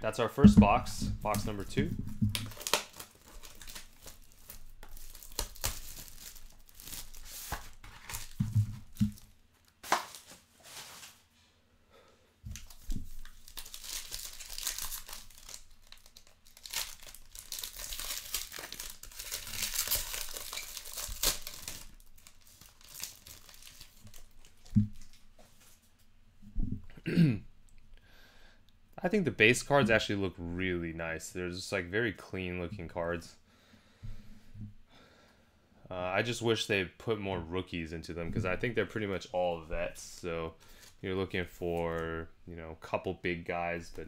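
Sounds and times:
plastic and foil crinkling and tearing: 1.2 - 11.2, 12.5 - 25.8, 40.0 - 41.0.

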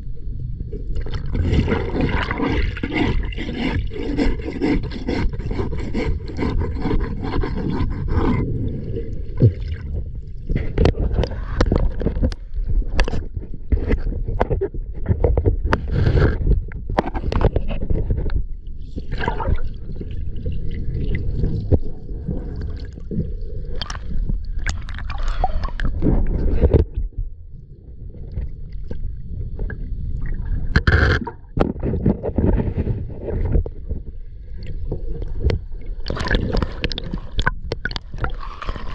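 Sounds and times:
underwater water rumble: 0.0 - 38.9
knocks and scrapes: 1.2 - 19.2, 25.6 - 27.4, 30.7 - 38.9.

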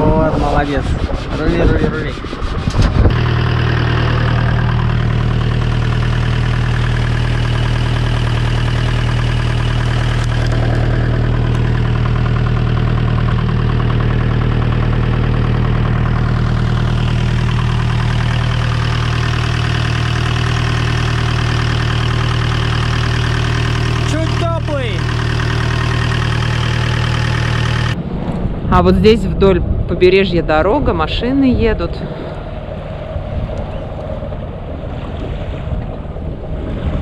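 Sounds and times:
marine diesel engine running: 0.0 - 37.0.

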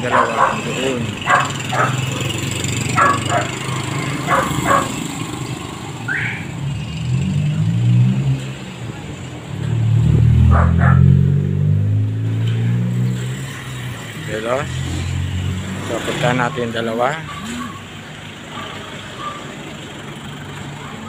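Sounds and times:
dog barking: 0.0 - 5.1, 10.4 - 11.2, 18.5 - 19.6
dog yelping: 0.0 - 5.1, 10.5 - 11.2, 17.2 - 17.9, 18.5 - 19.6
vehicle engine passing: 0.0 - 21.0.

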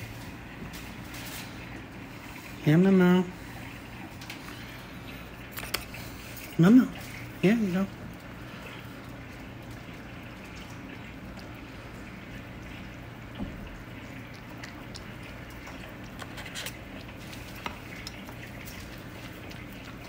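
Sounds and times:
cat licking and chewing: 8.1 - 20.0.

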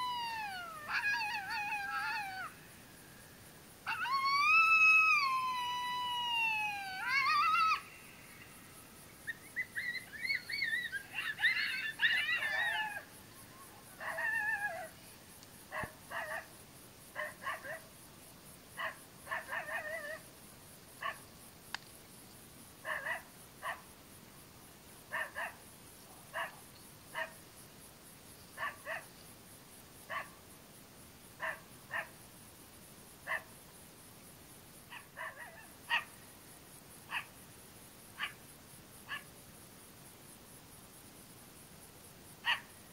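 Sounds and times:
coyote howling: 0.0 - 2.6, 3.8 - 8.2, 9.4 - 15.0
coyote yips: 0.0 - 2.6, 3.9 - 8.0, 9.3 - 14.9.

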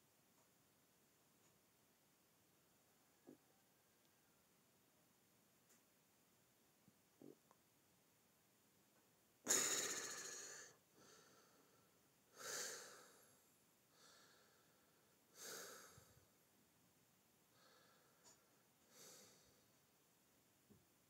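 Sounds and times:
person breathing: 9.5 - 16.3, 17.5 - 19.8.

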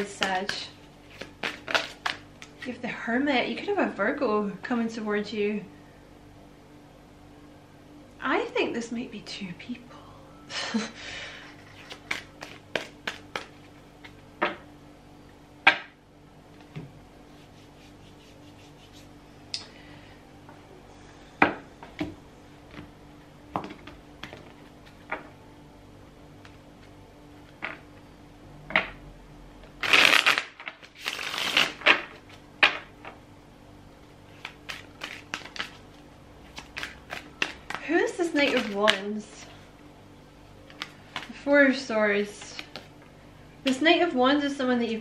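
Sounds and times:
cards shuffling: 0.2 - 2.7, 11.6 - 14.2, 29.8 - 32.4, 34.3 - 39.1, 40.7 - 41.4, 42.3 - 42.9
cards snapping and tapping: 1.2 - 2.6, 11.8 - 14.2, 34.4 - 35.8.

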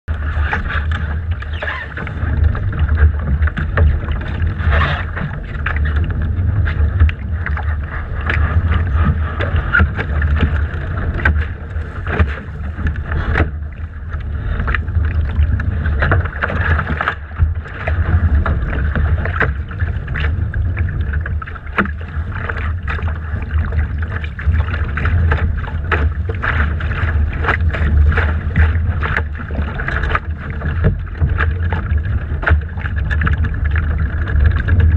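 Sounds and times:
water slapping boat hull: 0.0 - 34.9
wind buffeting microphone: 0.1 - 34.9.

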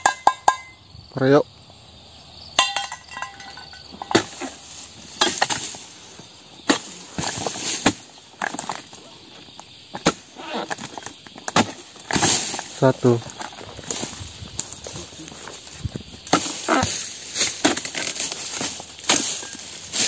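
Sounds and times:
chisel chopping palm fronds: 4.0 - 4.6, 5.2 - 5.8, 6.6 - 8.9, 11.5 - 12.9, 16.3 - 20.0.

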